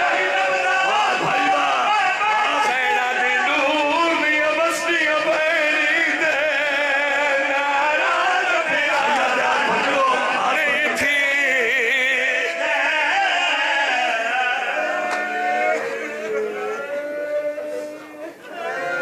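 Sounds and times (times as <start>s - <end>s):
men chanting through loudspeakers: 0.0s - 19.0s.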